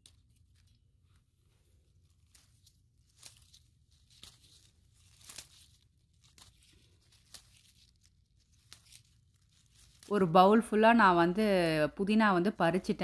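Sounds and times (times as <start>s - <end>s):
faint crackles and rustles: 0.0s - 10.8s.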